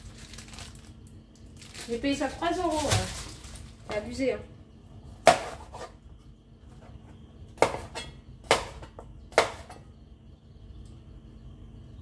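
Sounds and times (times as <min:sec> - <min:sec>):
knife chopping on cutting board: 0:05.2 - 0:05.9, 0:07.6 - 0:09.8.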